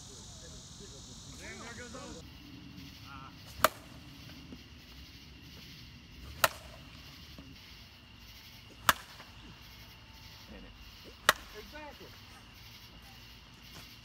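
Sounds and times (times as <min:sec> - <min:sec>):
bat hitting ball: 0:03.5 - 0:04.0, 0:06.3 - 0:06.9, 0:08.8 - 0:09.3, 0:11.2 - 0:11.6.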